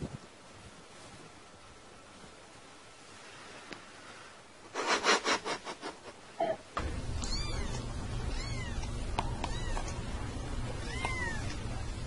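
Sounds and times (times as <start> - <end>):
steady hum: 4.7 - 12.0.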